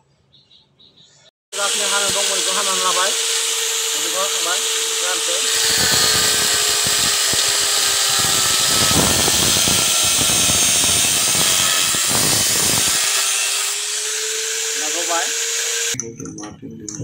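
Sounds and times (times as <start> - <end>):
angle grinder grinding metal: 1.6 - 16.0.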